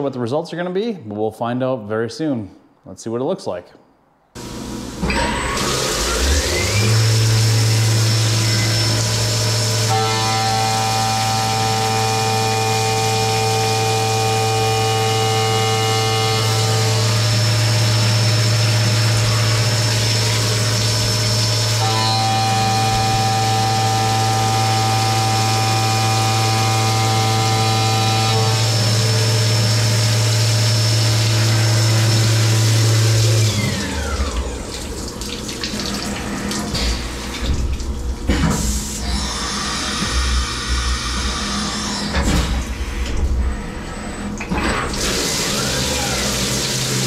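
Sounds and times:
spindle winding down whine: 4.4 - 35.1
metal cutting noise: 4.4 - 43.0, 43.6 - 47.0
coolant spraying: 4.5 - 10.0, 16.8 - 26.3, 44.9 - 47.0.

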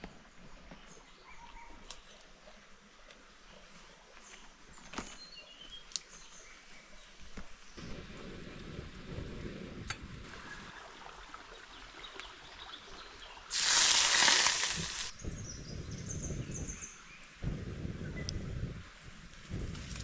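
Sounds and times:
loud hiss: 13.5 - 15.1.

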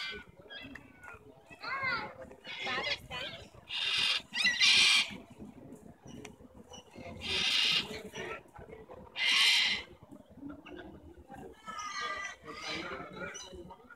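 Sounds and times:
cockatoos screeching: 9.2 - 9.9.

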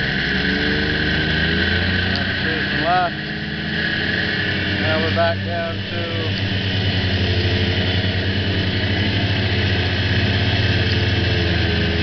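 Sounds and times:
snowmobile engine running: 0.0 - 12.0.

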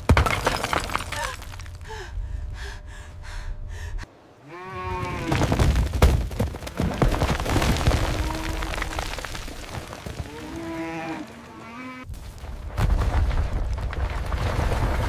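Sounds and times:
debris crashing: 0.0 - 1.9, 5.0 - 10.7, 12.1 - 15.0
woman panting: 1.2 - 4.1
low rumble: 1.6 - 4.1
crackling: 5.0 - 15.0
cow mooing: 10.4 - 12.0.

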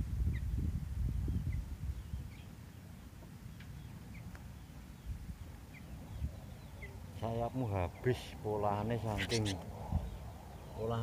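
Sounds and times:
small bird chirping faintly: 8.8 - 10.9.

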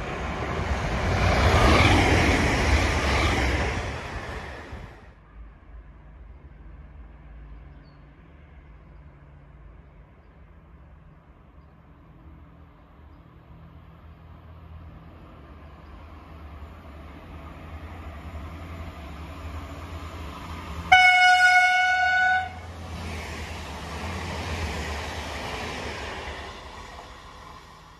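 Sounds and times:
train rumbling: 0.0 - 27.9
train horn blast: 20.9 - 22.7.

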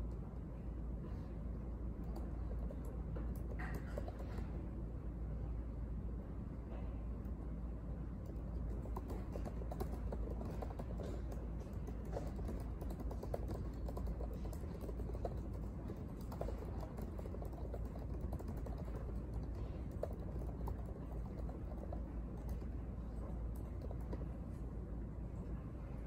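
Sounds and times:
steady low hum: 0.0 - 26.0
laptop keyboard typing: 1.9 - 4.6, 8.2 - 24.6.

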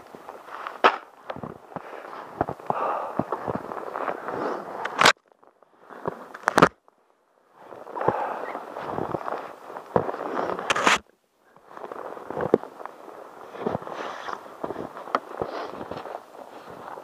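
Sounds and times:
fingers rubbing camera microphone: 8.0 - 11.1.

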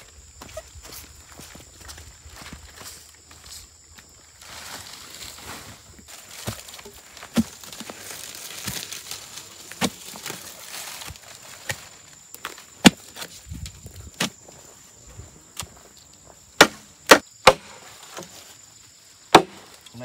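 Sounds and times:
blade chopping wood: 9.7 - 10.4, 12.4 - 13.3, 16.6 - 18.3, 19.3 - 19.7.

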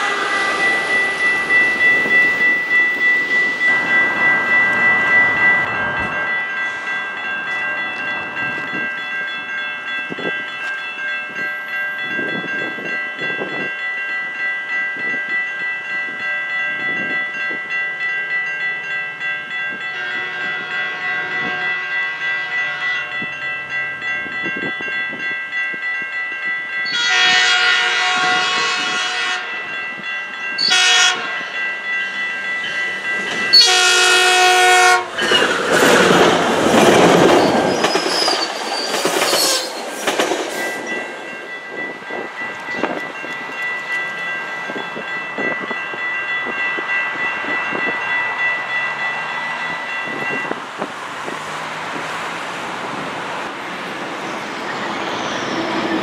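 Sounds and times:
train horn blasts: 0.0 - 0.8, 19.9 - 23.2, 26.9 - 29.6, 30.6 - 31.5, 33.5 - 35.2
railroad crossing bell ringing: 0.0 - 56.0.

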